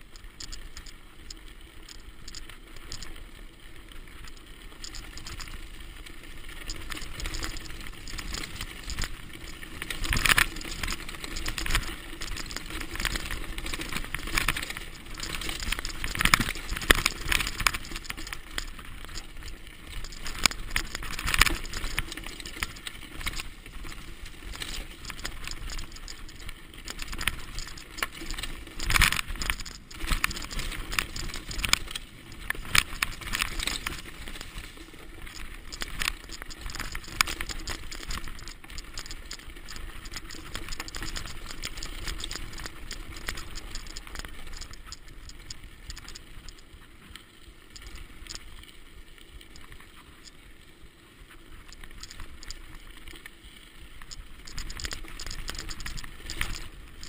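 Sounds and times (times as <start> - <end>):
bike tyres rolling over dirt: 0.0 - 57.0
bike rattling over bumps: 4.1 - 46.5.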